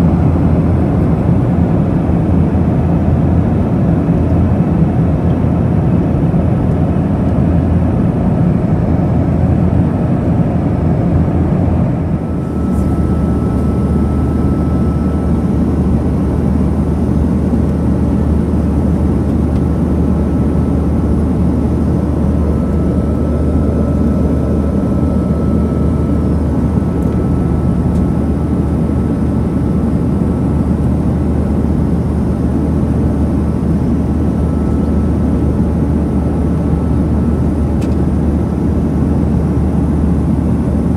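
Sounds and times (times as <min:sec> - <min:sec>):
airplane cabin drone: 0:00.0 - 0:40.9
faint high whine: 0:11.3 - 0:39.2.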